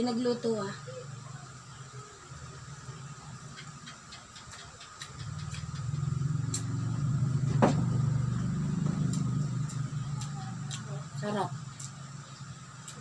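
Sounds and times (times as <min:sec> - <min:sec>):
low engine hum: 0:05.0 - 0:13.0.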